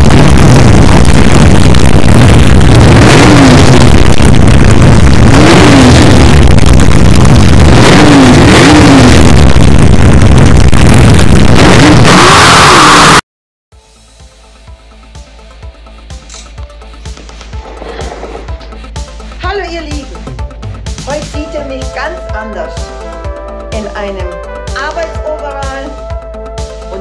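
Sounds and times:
car engine revving: 0.0s - 13.2s.

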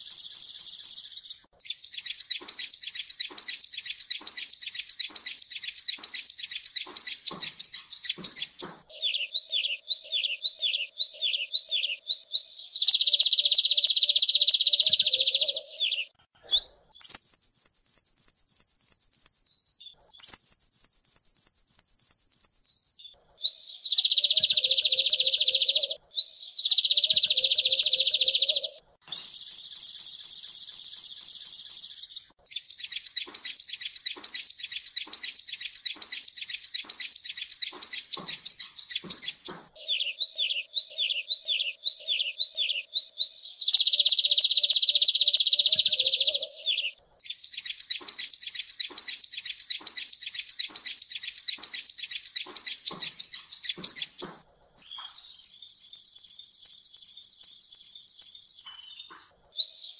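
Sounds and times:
sunbird song: 0.0s - 59.9s.

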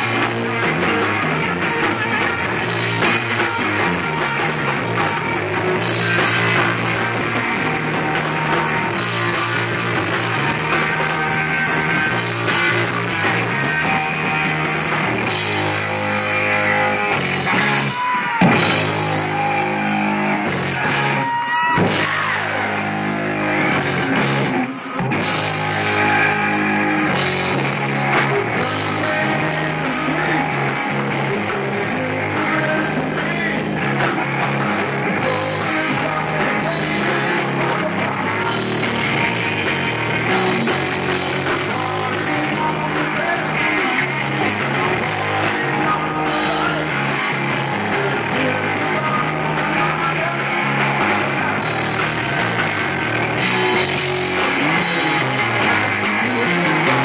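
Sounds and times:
man singing: 0.0s - 15.9s, 17.1s - 22.8s, 25.2s - 57.0s
live rock band playing: 0.0s - 57.0s.

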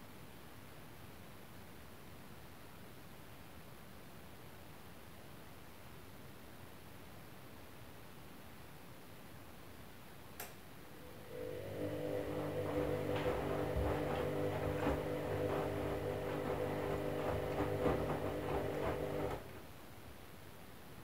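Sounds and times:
washing machine drum motor humming: 10.9s - 19.6s
water and laundry sloshing: 11.0s - 19.6s.

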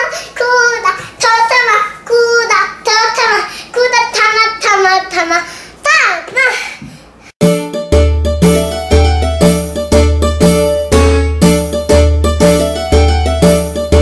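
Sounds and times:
girl singing unaccompanied: 0.0s - 5.5s.

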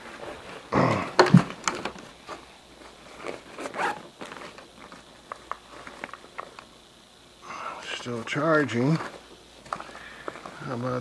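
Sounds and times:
fabric bag rustling: 0.0s - 6.5s.

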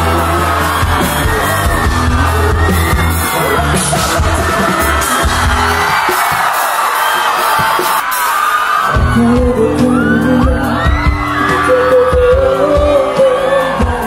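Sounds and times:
live rock band playing: 0.0s - 14.0s
person singing and shouting: 8.9s - 14.0s.

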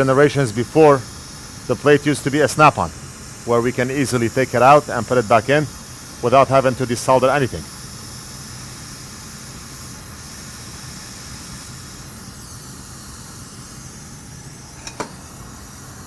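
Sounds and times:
hot air blower hissing: 0.0s - 16.0s.

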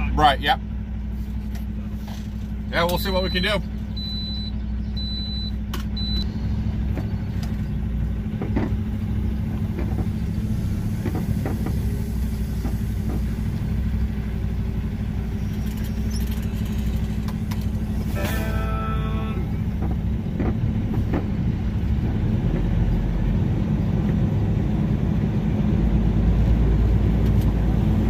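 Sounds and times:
diesel truck engine running: 0.0s - 28.0s
short high beeps: 18.2s - 19.6s.

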